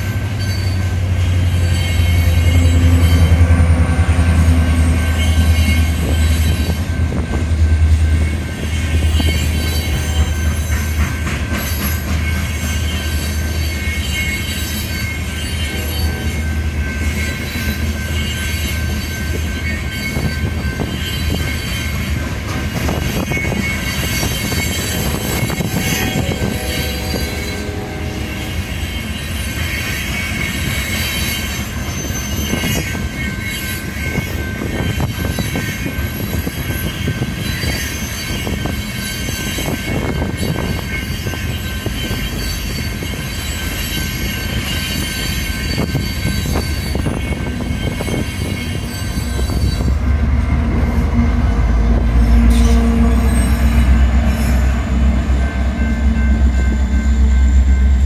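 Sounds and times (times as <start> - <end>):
crossing bell ringing: 0.0 - 58.0
diesel locomotive rumble: 0.0 - 58.0
train wheels squealing and clattering: 0.0 - 58.0.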